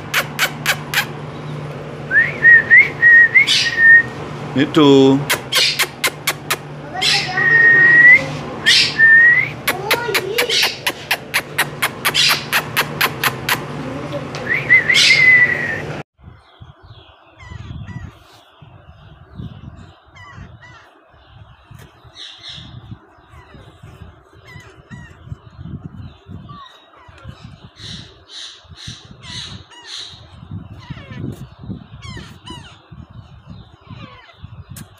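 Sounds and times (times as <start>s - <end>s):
parrot chicks peeping: 0.0s - 1.8s, 2.4s - 4.3s, 5.2s - 15.6s, 16.3s - 34.9s
parrot upward-gliding whistles: 14.5s - 15.9s.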